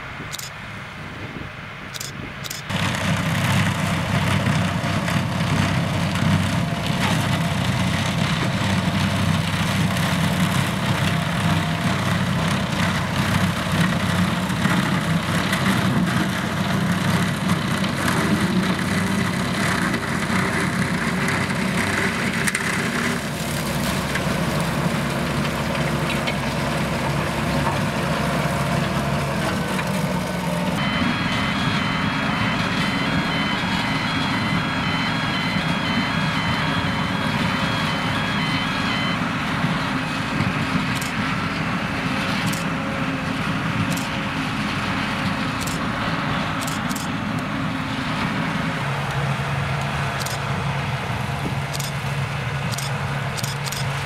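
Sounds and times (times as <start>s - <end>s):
harvester engine and machinery running: 0.0s - 54.0s.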